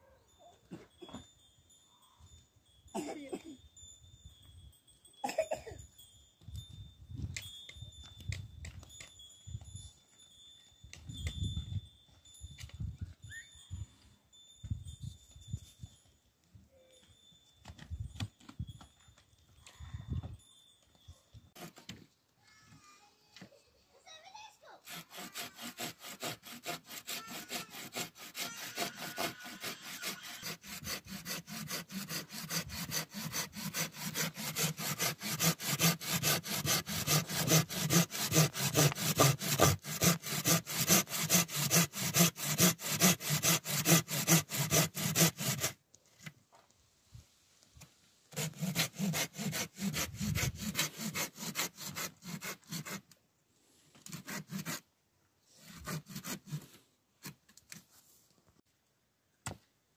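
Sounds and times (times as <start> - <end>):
hand saw cutting wood: 21.6 - 22.0, 24.8 - 45.8, 48.3 - 53.2, 54.0 - 54.8, 55.6 - 57.4.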